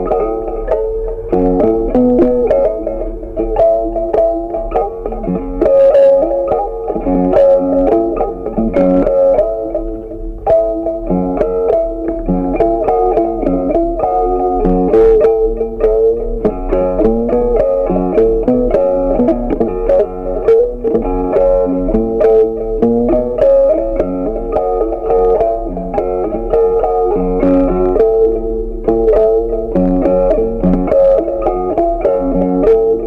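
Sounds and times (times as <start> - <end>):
plucked guitar music: 0.0 - 33.0.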